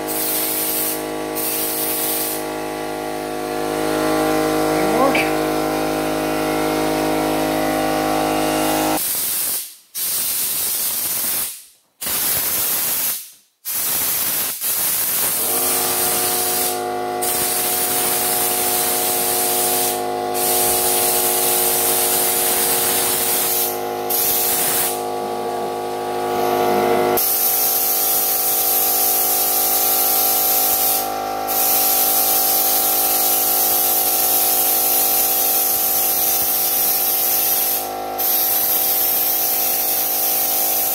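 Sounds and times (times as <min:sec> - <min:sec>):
spray gun hissing: 0:00.1 - 0:02.4, 0:13.8 - 0:25.0, 0:27.2 - 0:40.9
steady machine hum: 0:15.4 - 0:22.1, 0:22.9 - 0:27.2.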